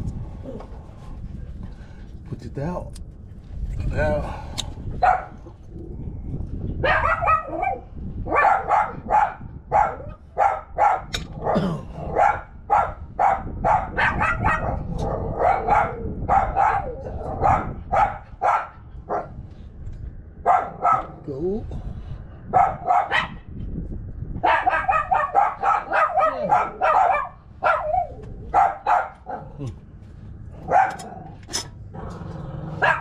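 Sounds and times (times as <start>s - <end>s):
dog barking: 5.0s - 5.4s, 6.8s - 19.4s, 20.4s - 21.2s, 22.5s - 23.4s, 24.4s - 29.6s, 30.6s - 31.4s, 32.8s - 33.0s.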